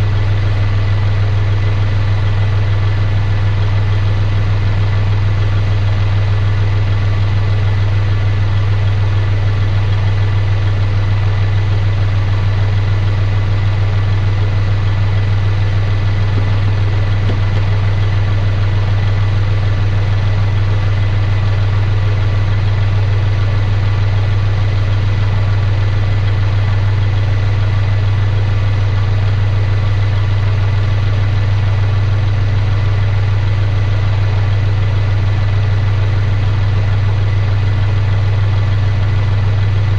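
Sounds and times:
diesel tractor engine idling: 0.0 - 39.9.

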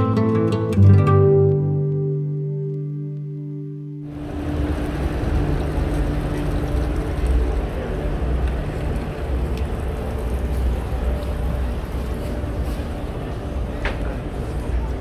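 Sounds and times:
background music: 0.0 - 10.6
wind buffeting microphone: 4.1 - 15.0.

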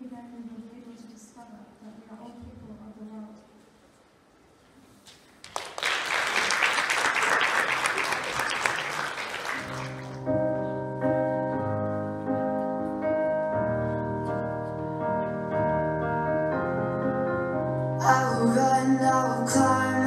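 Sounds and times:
audience applauding: 5.4 - 10.3
slow instrumental music with chords: 10.1 - 20.0.

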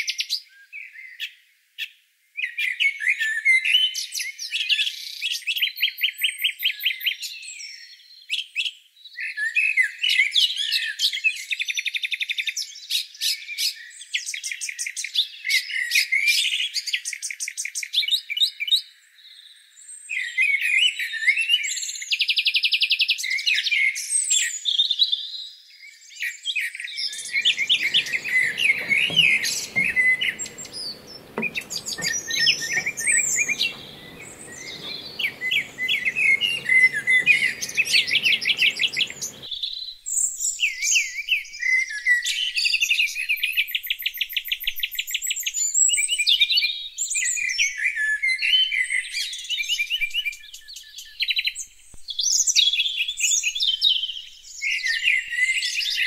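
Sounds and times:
songbirds chirping and twittering: 27.1 - 39.5
faint low background noise: 27.2 - 39.5.

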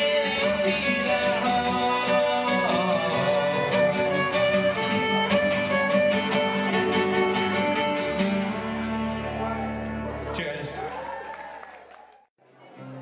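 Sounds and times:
fiddle playing melody: 0.0 - 9.4
strummed acoustic guitar: 0.0 - 10.5.

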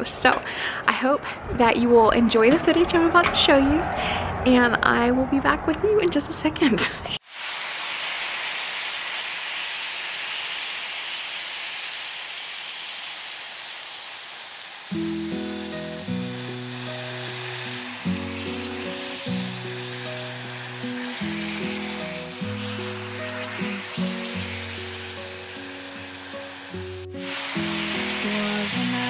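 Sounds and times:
oil sizzling in frying pan: 7.2 - 29.0
music with slow sustained chords: 14.9 - 29.0.

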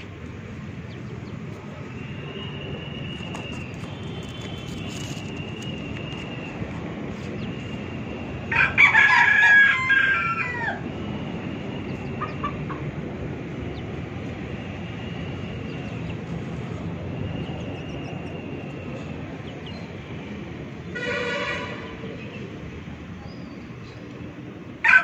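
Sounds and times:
rooster crowing: 8.5 - 10.8.

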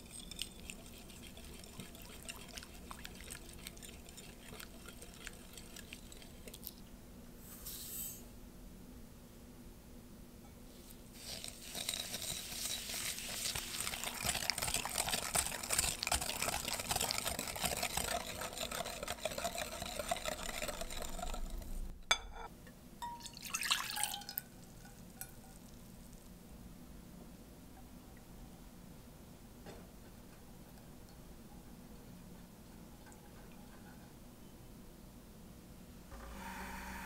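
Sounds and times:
whisk beating in glass bowl: 0.0 - 6.7, 11.2 - 21.9
milk pouring into saucepan: 0.0 - 6.8, 11.2 - 21.8, 23.2 - 26.0.

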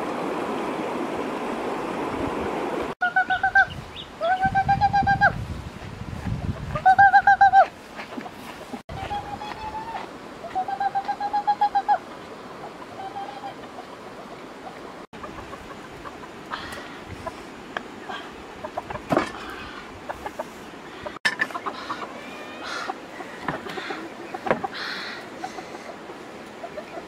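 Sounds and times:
hen clucking: 3.0 - 5.4, 12.6 - 17.4, 18.1 - 27.0.

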